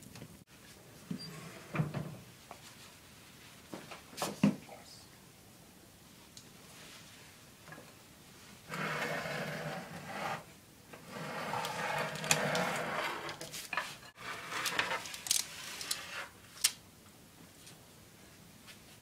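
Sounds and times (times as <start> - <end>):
metal baking tray scraping: 8.7 - 16.4.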